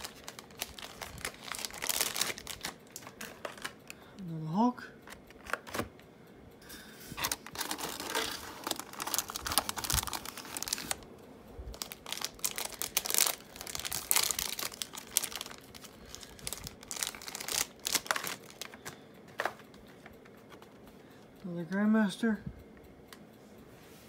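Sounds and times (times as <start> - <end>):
foil pack tearing and crinkling: 0.0 - 4.0, 7.2 - 11.0, 11.7 - 19.0.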